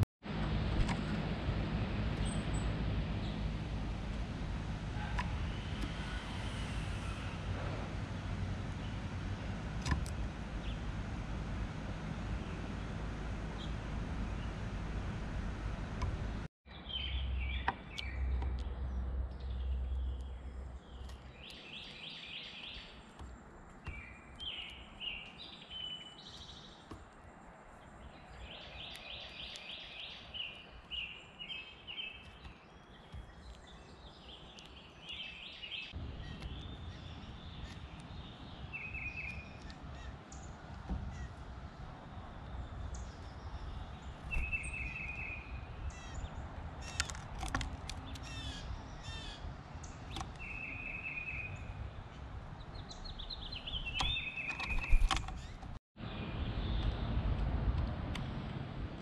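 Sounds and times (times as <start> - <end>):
birds chirping: 2.1 - 57.2
sharp clicks: 53.9 - 55.8.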